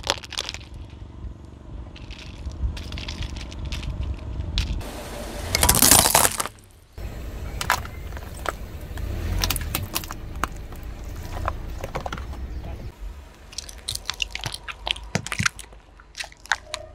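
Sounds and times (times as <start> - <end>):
plastic crunching under car tyre: 0.0 - 1.1, 5.5 - 12.8, 13.4 - 16.9
plastic cracking: 13.5 - 16.9.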